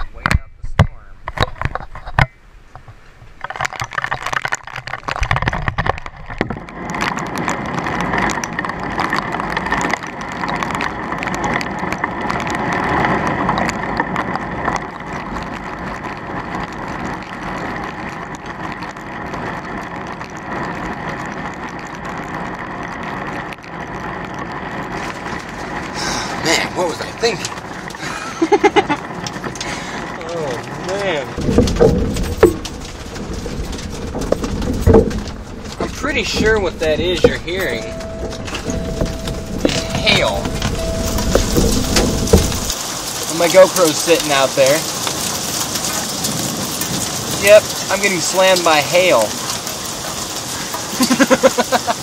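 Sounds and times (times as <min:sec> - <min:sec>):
heavy rain and hail pelting: 0:01.2 - 0:52.0
low thump: 0:31.4 - 0:42.7.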